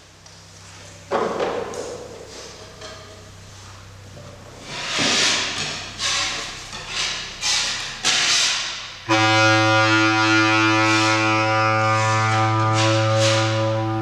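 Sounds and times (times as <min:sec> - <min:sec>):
bass clarinet low note: 0:09.1 - 0:14.0.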